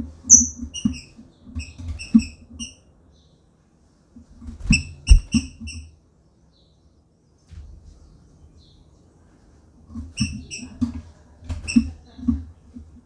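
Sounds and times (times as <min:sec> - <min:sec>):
bird chip calls: 0:00.3 - 0:00.6.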